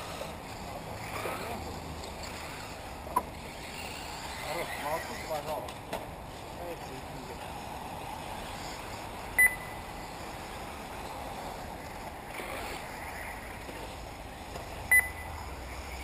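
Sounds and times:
steady outdoor hiss: 0:00.0 - 0:16.0
short electronic beeps: 0:09.4 - 0:09.8, 0:14.9 - 0:15.3.

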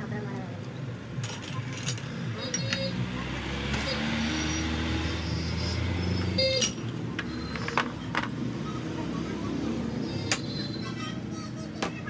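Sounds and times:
metal tools clinking and knocking: 0:01.2 - 0:02.8, 0:06.5 - 0:08.3, 0:10.3 - 0:10.5
ringing metallic clink: 0:06.4 - 0:06.8.

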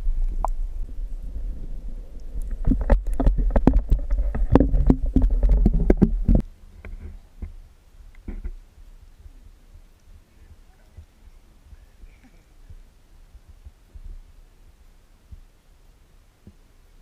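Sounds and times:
low rumble of moving water: 0:00.0 - 0:17.0
sharp clicks and scrapes: 0:02.2 - 0:08.6.

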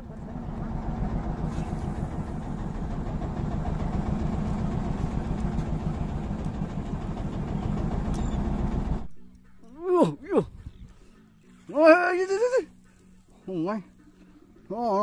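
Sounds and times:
boat engine running: 0:00.0 - 0:09.1.

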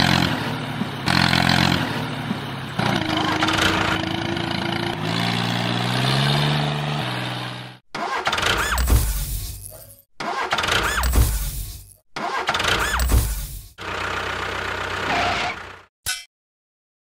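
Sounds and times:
tractor engine revving: 0:00.0 - 0:08.8, 0:13.8 - 0:15.9.

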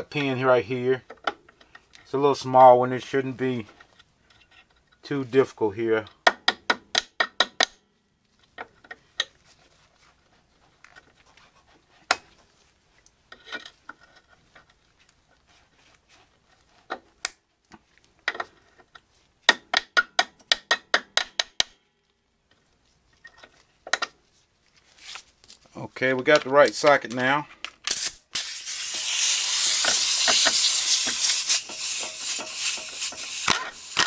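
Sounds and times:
metal hand tools clicking: 0:28.9 - 0:34.0.

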